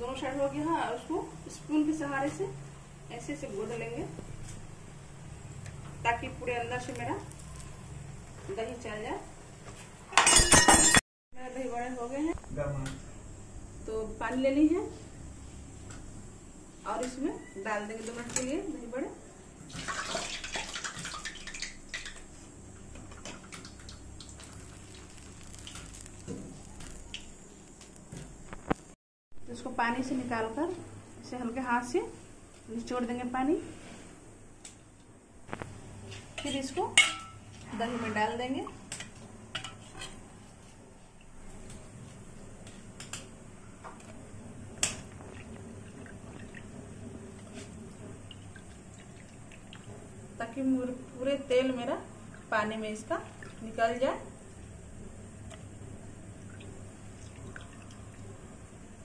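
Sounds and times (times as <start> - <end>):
water splashing in steel bowl: 19.7 - 22.2, 44.8 - 46.8, 52.2 - 54.0, 56.4 - 58.4
spoon clinking on steel bowl: 36.4 - 37.4.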